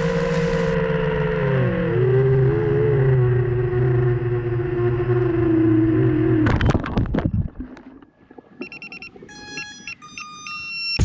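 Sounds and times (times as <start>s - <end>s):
drone motors and propellers: 0.0s - 7.5s
high electronic beeps: 8.6s - 11.0s.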